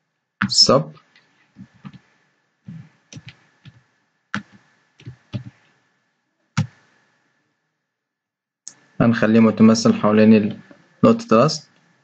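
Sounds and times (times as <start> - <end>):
computer keyboard typing: 3.1 - 3.4.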